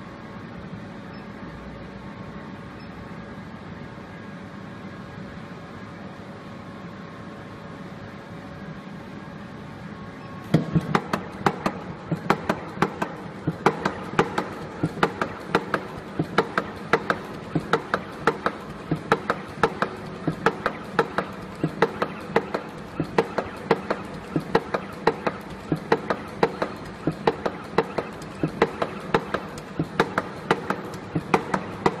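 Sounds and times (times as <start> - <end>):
machine low hum: 0.0 - 32.0
cutter and punch clacking: 10.5 - 32.0.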